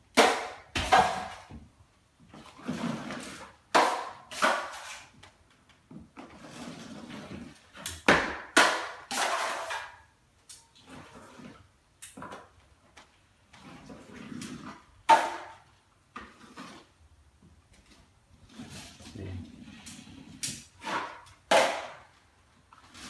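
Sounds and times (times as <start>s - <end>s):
drywall knife scraping: 2.4s - 5.1s, 6.2s - 7.9s, 13.5s - 15.6s, 16.2s - 17.0s, 18.4s - 22.0s, 22.7s - 23.0s.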